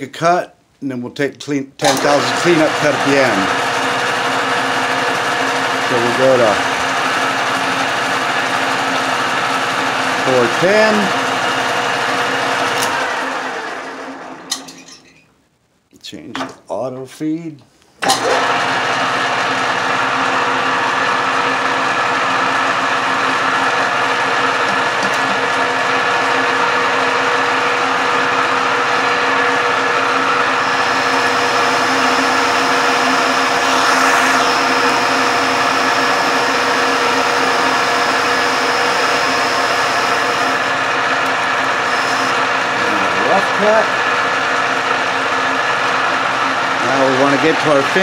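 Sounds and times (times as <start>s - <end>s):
metal lathe drone: 1.9s - 14.3s, 18.4s - 48.0s
thin high whine: 30.6s - 40.6s.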